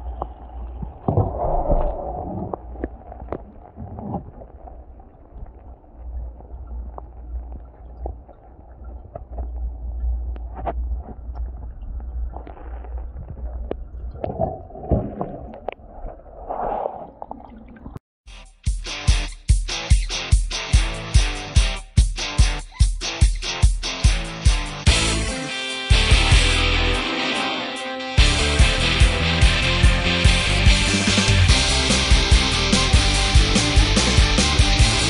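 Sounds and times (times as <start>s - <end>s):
low steady rumble: 0.0s - 18.0s.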